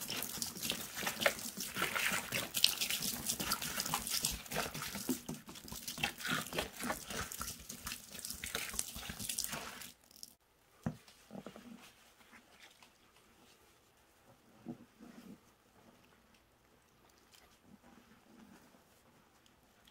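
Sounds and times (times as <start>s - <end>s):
liquid pouring and splashing: 0.0s - 10.4s
soaked sponge squishing: 0.0s - 10.4s.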